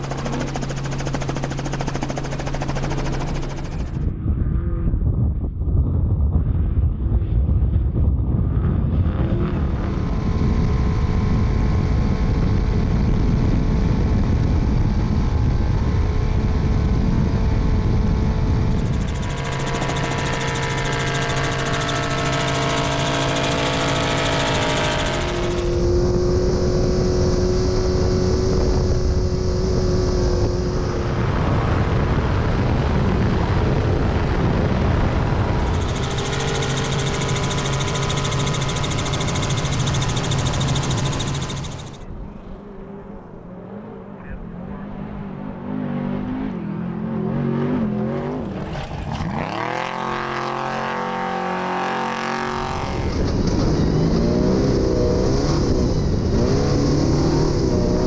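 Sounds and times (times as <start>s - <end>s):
truck engine running hard: 0.0s - 4.1s, 9.0s - 45.6s.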